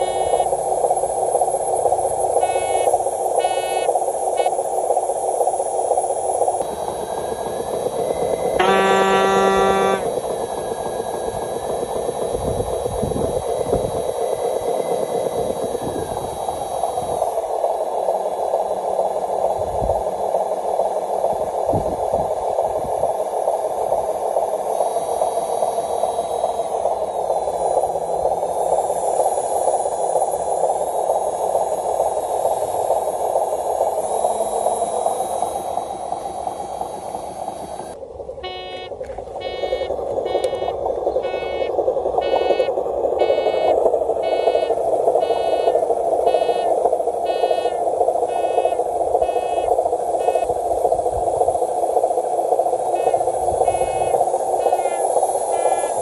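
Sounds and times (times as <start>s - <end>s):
electric motor whirring: 8.0s - 10.1s.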